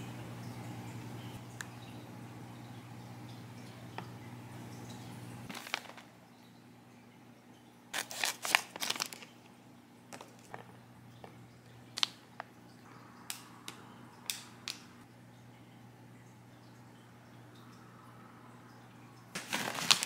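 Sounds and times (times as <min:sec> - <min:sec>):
plastic pouch crinkling: 0:05.5 - 0:06.1, 0:07.9 - 0:09.5, 0:10.1 - 0:10.7, 0:11.9 - 0:12.5, 0:19.3 - 0:20.0.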